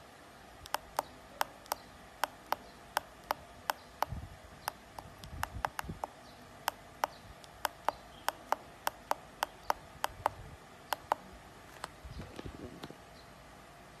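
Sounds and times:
push-button switch clicks: 0:00.6 - 0:11.2.

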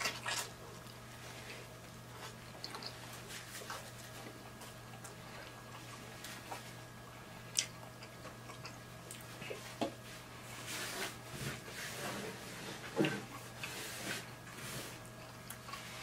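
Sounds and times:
chewing corn on the cob: 0:00.0 - 0:01.1, 0:02.1 - 0:06.6, 0:07.4 - 0:09.7
faint steady hum: 0:00.0 - 0:16.0.

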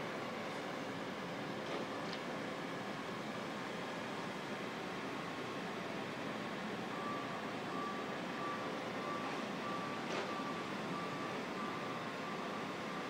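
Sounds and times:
steady background noise: 0:00.0 - 0:13.0
reversing alarm beeping: 0:06.9 - 0:13.0.

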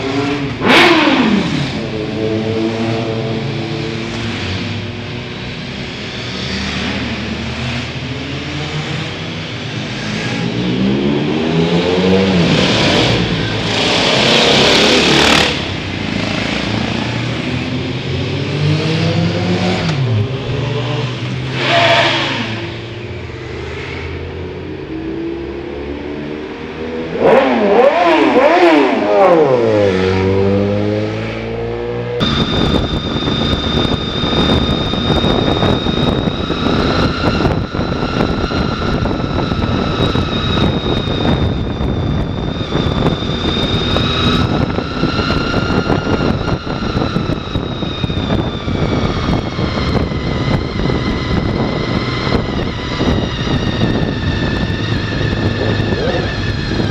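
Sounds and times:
high engine whine: 0:00.0 - 0:56.9
motorcycles passing: 0:00.0 - 0:56.9
motorcycle engine running steadily: 0:32.1 - 0:56.9
wind rushing: 0:32.1 - 0:56.9.

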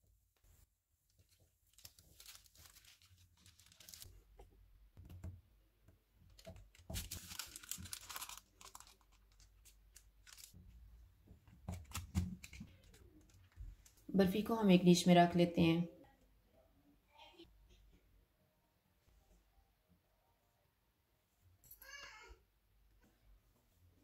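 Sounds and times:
paper crinkling: 0:01.1 - 0:04.2, 0:06.3 - 0:10.6, 0:11.7 - 0:14.0.

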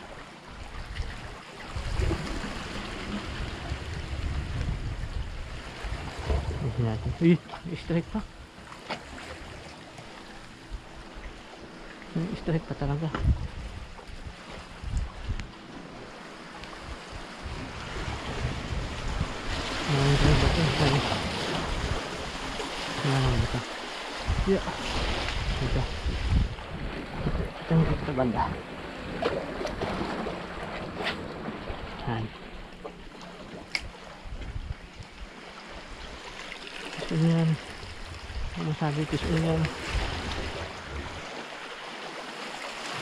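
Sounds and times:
seawater rushing among rocks: 0:00.0 - 0:43.0
wind on microphone: 0:00.7 - 0:07.4, 0:12.7 - 0:32.3, 0:33.7 - 0:36.2, 0:37.1 - 0:41.4.

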